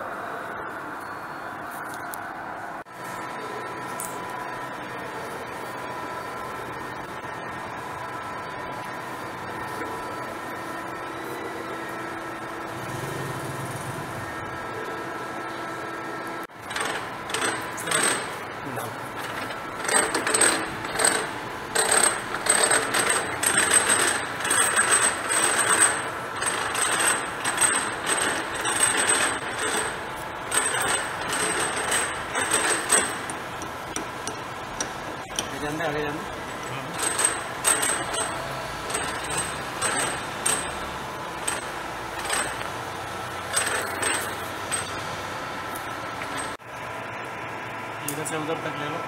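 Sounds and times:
machine hum with held tones: 0:00.0 - 0:49.0
metallic clatter and knocks: 0:19.2 - 0:35.6, 0:36.4 - 0:40.8, 0:41.4 - 0:42.7, 0:43.5 - 0:45.0.

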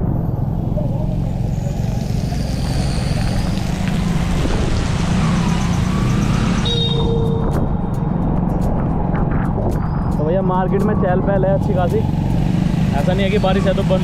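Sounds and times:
motorbike engine rumble: 0:00.0 - 0:09.6
tyres on wet road: 0:00.6 - 0:07.8, 0:11.9 - 0:14.0.

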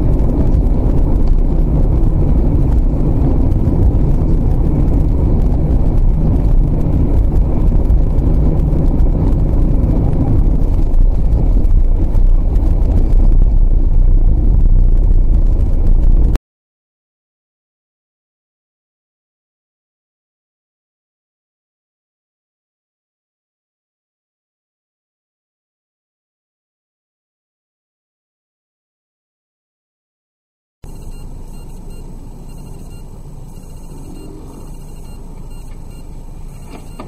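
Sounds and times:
car engine and road rumble: 0:00.0 - 0:16.4, 0:30.8 - 0:37.0.

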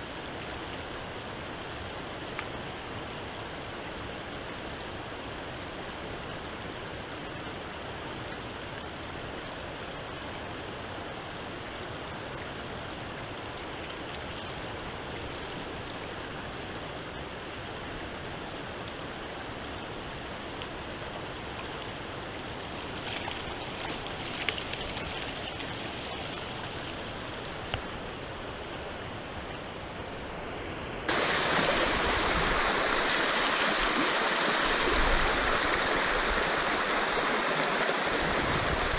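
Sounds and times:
river water flowing: 0:00.0 - 0:38.9
water rushing over rocks: 0:31.0 - 0:38.9.

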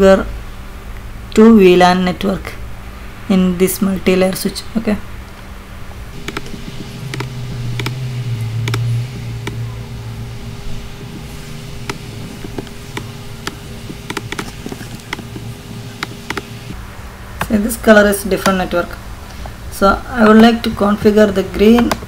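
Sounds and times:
low hum: 0:00.0 - 0:21.5
computer mouse clicks: 0:06.2 - 0:08.0, 0:08.6 - 0:09.6, 0:11.0 - 0:16.7.

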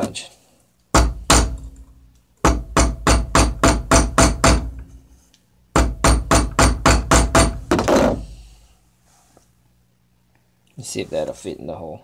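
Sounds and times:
hammer pounding metal wire: 0:00.9 - 0:05.0, 0:05.7 - 0:08.2.

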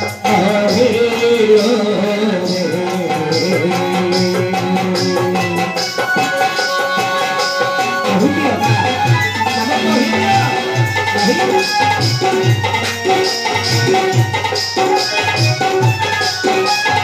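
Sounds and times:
person singing through microphone: 0:00.0 - 0:17.0
hand drum beat: 0:02.7 - 0:17.0.

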